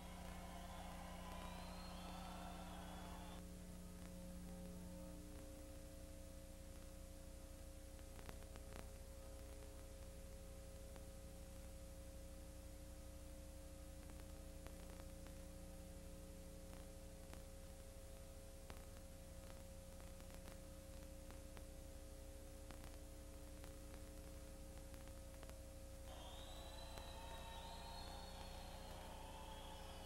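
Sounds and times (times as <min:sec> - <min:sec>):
faint electrical hum with tones: 0:00.0 - 0:30.0.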